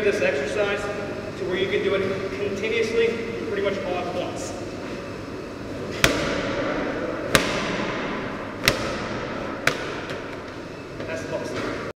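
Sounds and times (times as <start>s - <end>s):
medicine ball smacking rubber floor: 5.9s - 10.6s.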